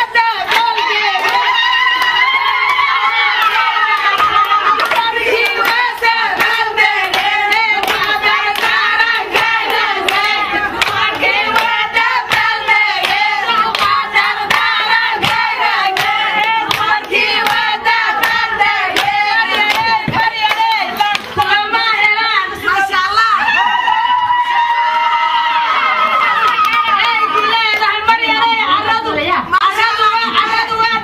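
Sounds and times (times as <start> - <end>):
rhythmic hand clapping: 0.0 - 22.4
women singing together: 0.0 - 31.0.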